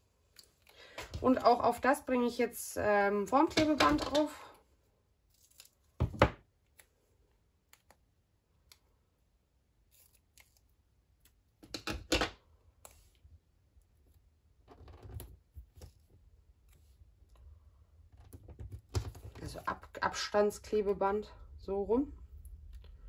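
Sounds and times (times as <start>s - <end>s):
scissors cutting foam tape: 9.8s - 11.8s.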